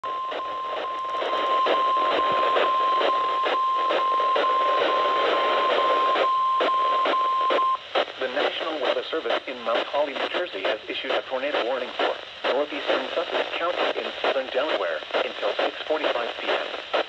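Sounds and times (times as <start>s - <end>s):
weather radio alarm tone: 0.0s - 7.8s
radio crackles: 0.0s - 17.0s
static hiss: 0.0s - 17.0s.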